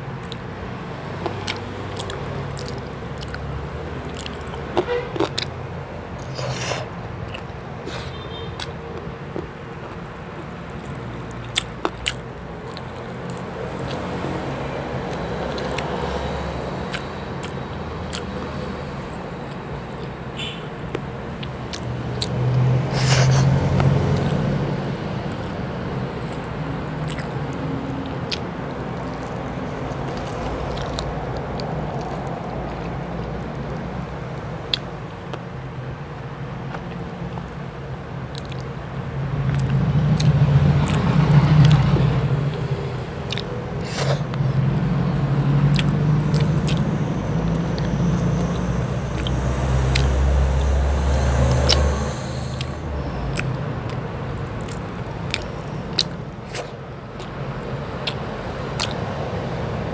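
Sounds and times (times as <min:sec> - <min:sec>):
chewing with wet mouth clicks: 0:00.2 - 0:00.5, 0:01.2 - 0:05.6, 0:06.2 - 0:16.0, 0:16.9 - 0:18.6, 0:20.9 - 0:24.5, 0:25.3 - 0:29.6, 0:30.2 - 0:35.5, 0:38.3 - 0:38.8, 0:39.4 - 0:44.7, 0:45.6 - 0:59.2
steady low rumble: 0:39.0 - 0:57.2.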